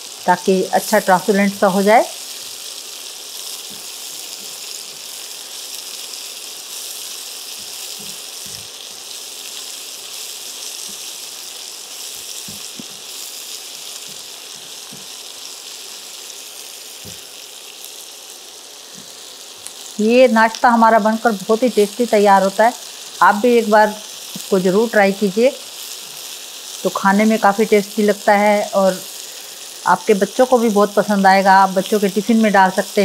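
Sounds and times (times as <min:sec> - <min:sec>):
onions sizzling in a pan: 0:00.0 - 0:33.0.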